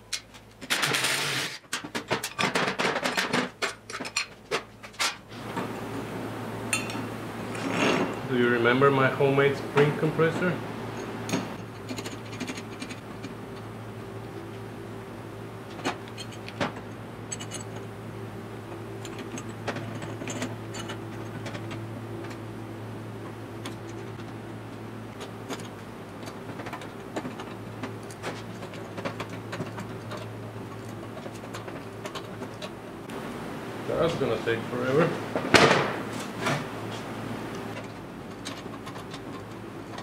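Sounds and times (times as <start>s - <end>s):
steady low hum: 3.7s - 40.0s
metal clinks and knocks: 10.9s - 13.7s, 15.7s - 17.9s, 19.0s - 22.4s.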